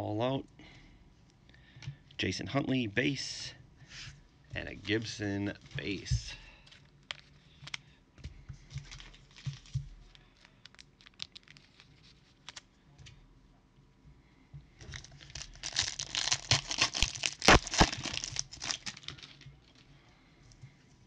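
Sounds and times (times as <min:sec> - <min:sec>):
wrapper tearing and crinkling: 0:10.4 - 0:12.7, 0:14.9 - 0:19.8.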